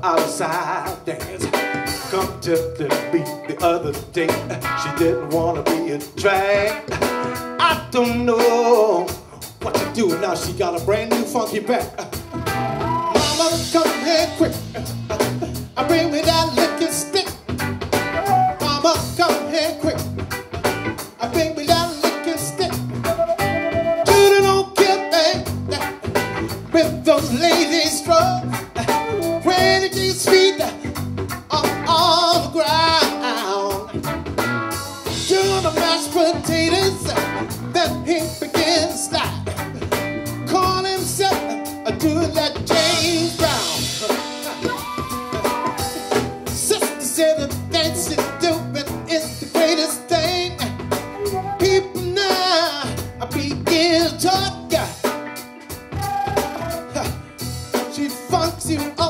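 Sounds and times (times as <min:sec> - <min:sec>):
drum kit: 0:00.0 - 0:59.0
electric bass: 0:00.0 - 0:59.0
electric guitar: 0:00.0 - 0:59.0
melodic lead line: 0:09.8 - 0:49.2, 0:53.0 - 0:57.8.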